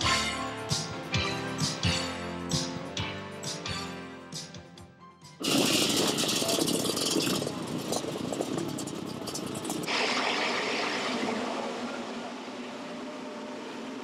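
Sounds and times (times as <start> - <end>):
motocross bikes revving: 5.4 - 8.0.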